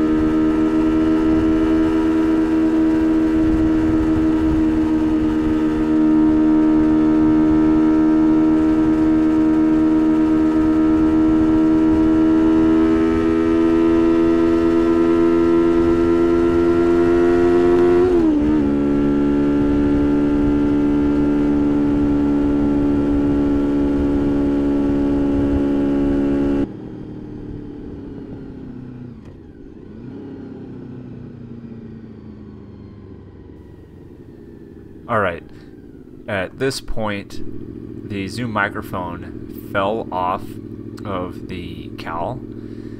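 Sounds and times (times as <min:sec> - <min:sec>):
motorcycle engine revving high: 0:00.0 - 0:32.6, 0:33.4 - 0:42.9
road and wind rush: 0:00.0 - 0:42.9.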